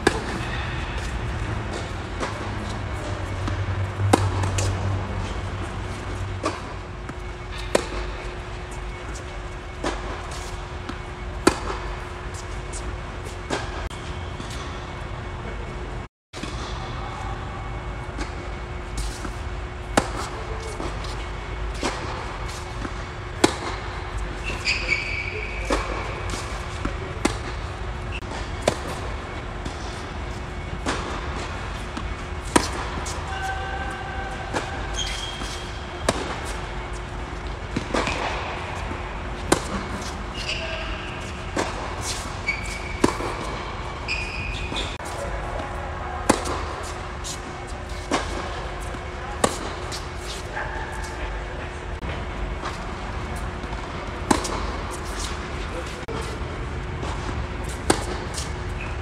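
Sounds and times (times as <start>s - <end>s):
tennis ball bouncing: 0.0s - 9.2s, 19.0s - 30.0s, 30.6s - 33.2s, 34.5s - 50.4s, 52.6s - 55.4s, 57.0s - 58.9s
racket hitting tennis ball: 0.0s - 13.8s, 18.2s - 51.0s, 52.6s - 56.3s, 57.0s - 58.9s
shoe squeaks: 24.2s - 27.1s, 32.5s - 37.4s, 39.6s - 45.2s, 58.3s - 59.0s.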